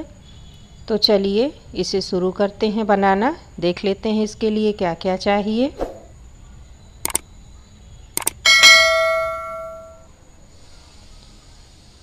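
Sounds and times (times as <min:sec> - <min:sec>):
quick double clicks: 0:07.0 - 0:07.2, 0:08.2 - 0:08.4
bright bell chime: 0:08.5 - 0:10.1.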